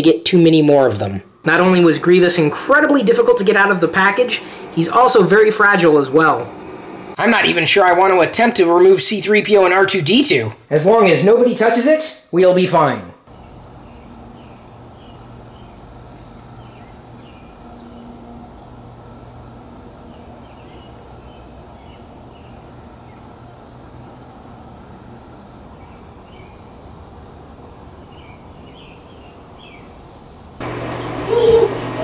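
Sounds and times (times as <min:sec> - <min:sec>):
steady low hum: 0:00.6 - 0:08.5
small birds chirping: 0:13.3 - 0:18.2, 0:20.0 - 0:31.6
high bird trills: 0:13.9 - 0:18.1, 0:21.8 - 0:27.5.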